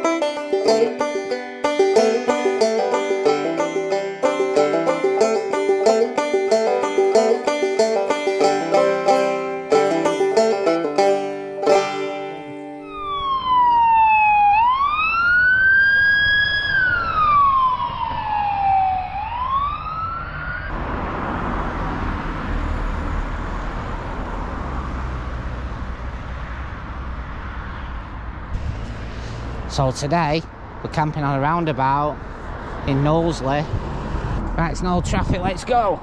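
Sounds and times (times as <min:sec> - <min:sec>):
plucked banjo notes: 0:00.0 - 0:12.9
traffic noise: 0:00.0 - 0:36.0
police siren wailing: 0:11.6 - 0:23.1.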